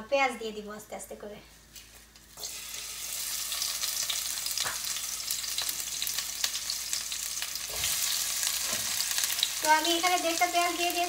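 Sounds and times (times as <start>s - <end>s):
onion sizzling in hot oil: 1.9s - 11.0s.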